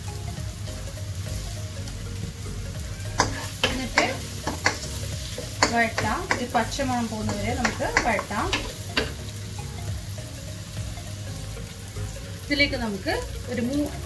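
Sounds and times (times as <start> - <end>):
onions sizzling in oil: 0.0 - 14.0
spatula scraping and knocking pan: 2.9 - 9.4.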